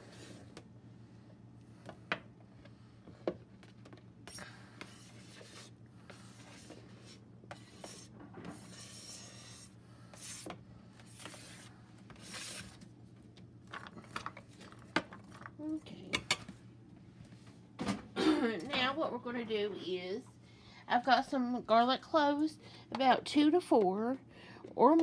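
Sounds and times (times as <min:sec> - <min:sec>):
utensil scraping plastic cutting mat: 0:04.8 - 0:12.8.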